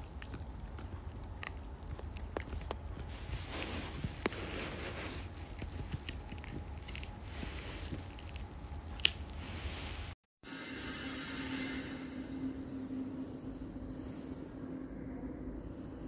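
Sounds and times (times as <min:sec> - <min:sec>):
dog chewing a treat: 0:00.0 - 0:09.2
sharp crack of chew: 0:00.0 - 0:09.3.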